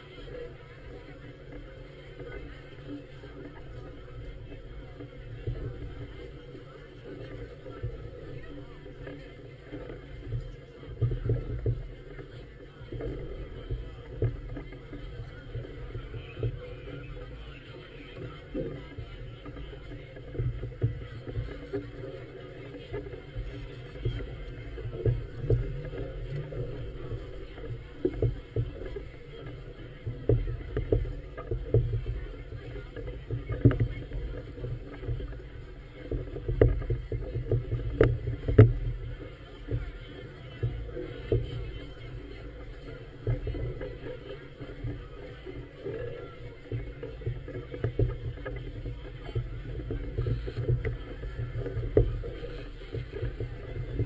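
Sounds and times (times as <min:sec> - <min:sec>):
water lapping against hull: 0:00.0 - 0:54.0.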